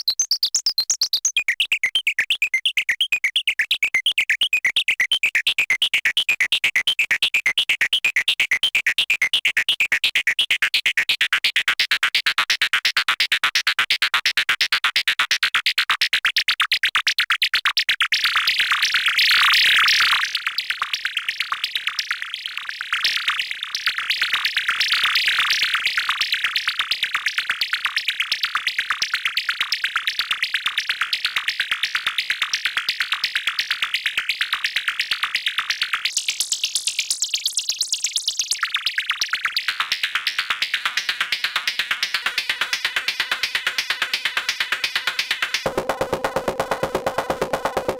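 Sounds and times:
synthesizer chirping pulses: 0:00.0 - 0:06.2.

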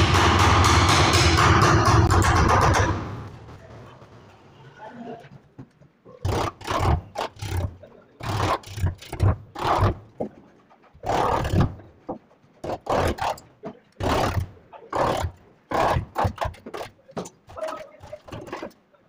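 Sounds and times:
wood chisel scraping wood: 0:06.3 - 0:18.8.

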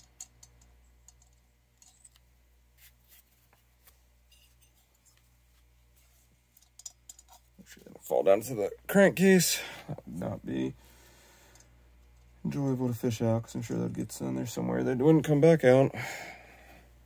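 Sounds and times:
small parts and tools clicking: 0:00.0 - 0:02.3, 0:06.5 - 0:07.7, 0:11.4 - 0:12.4.

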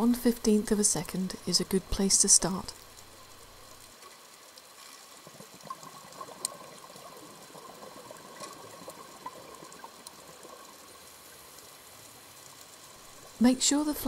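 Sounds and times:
low steady hiss: 0:00.0 - 0:14.0.

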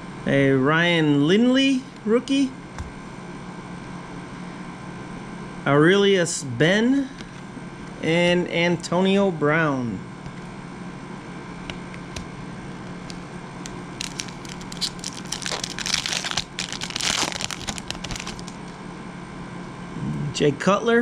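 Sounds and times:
steady low hum: 0:00.0 - 0:21.0
foil wrapper tearing and crinkling: 0:13.0 - 0:18.8.

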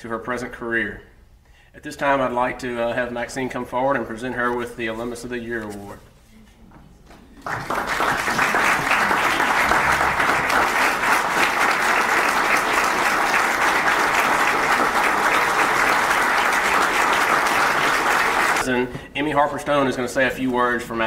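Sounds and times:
audience applauding: 0:07.4 - 0:18.6.

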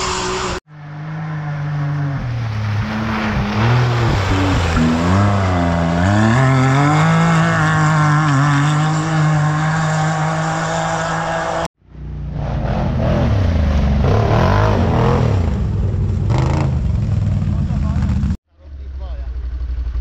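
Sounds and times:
race vehicle engine revving: 0:00.0 - 0:11.7.

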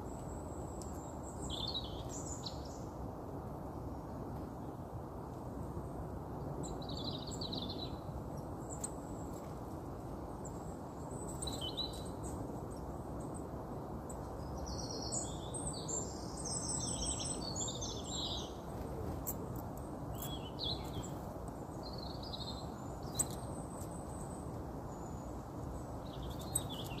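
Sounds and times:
small birds chirping: 0:00.0 - 0:03.0, 0:10.3 - 0:27.0
low background noise: 0:00.0 - 0:27.0.

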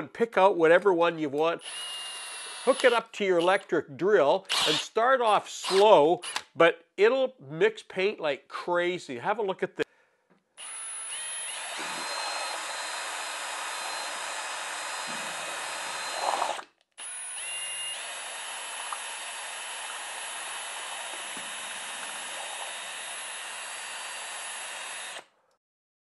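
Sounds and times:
cordless drill motor whine: 0:01.6 - 0:02.9, 0:10.6 - 0:25.3.

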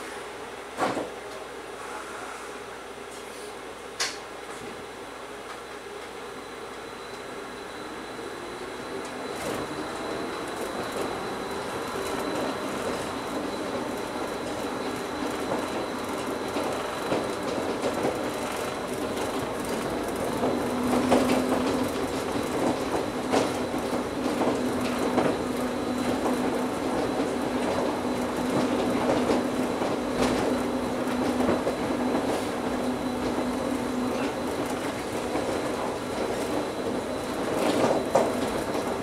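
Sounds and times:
train running rumble: 0:09.0 - 0:39.0.

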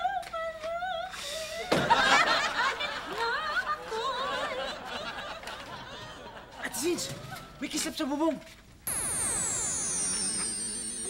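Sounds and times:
group of people laughing: 0:01.7 - 0:06.8.

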